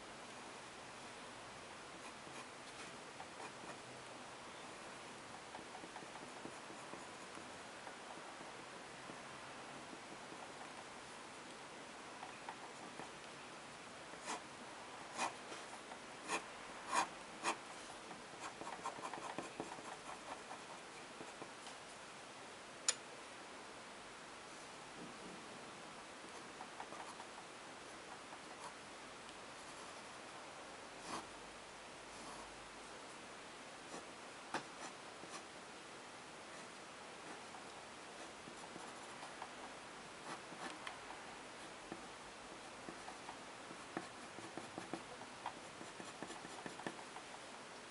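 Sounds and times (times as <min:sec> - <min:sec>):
faint steady hiss: 0:00.0 - 0:47.9
pen scratching on paper: 0:02.0 - 0:03.8, 0:05.4 - 0:07.6, 0:14.2 - 0:14.4, 0:15.1 - 0:21.5, 0:26.2 - 0:27.4, 0:31.0 - 0:31.3, 0:38.2 - 0:41.2, 0:41.9 - 0:47.3.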